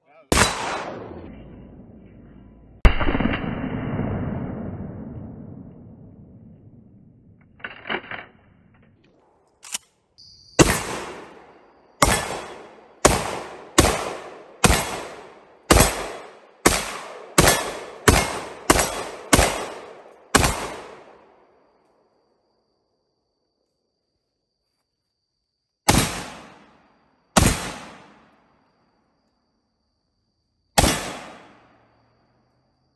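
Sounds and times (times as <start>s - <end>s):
gunshots with long echo: 0.3s - 7.4s, 10.5s - 21.6s, 25.9s - 28.6s, 30.8s - 32.1s.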